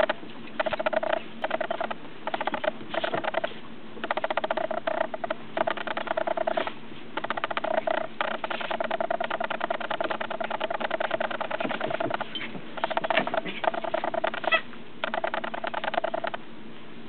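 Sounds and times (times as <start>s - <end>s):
dog toy squeaking: 12.1s - 15.4s.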